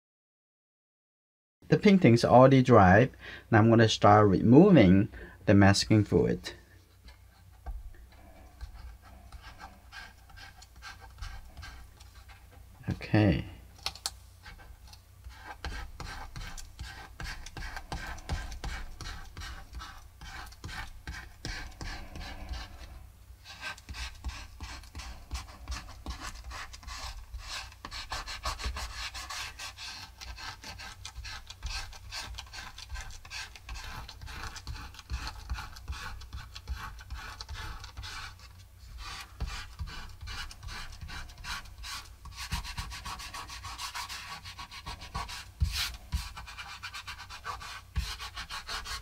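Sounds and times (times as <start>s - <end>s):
fingertips rubbing paper: 8.2s - 12.6s, 14.4s - 49.0s.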